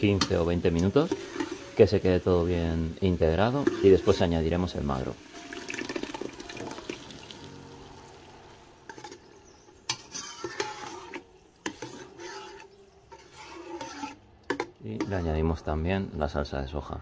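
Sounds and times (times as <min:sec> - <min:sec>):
metal spoon scraping a pot: 0:00.0 - 0:01.8, 0:03.4 - 0:04.5, 0:08.8 - 0:15.4
tomato sizzling in a pan: 0:00.0 - 0:15.2.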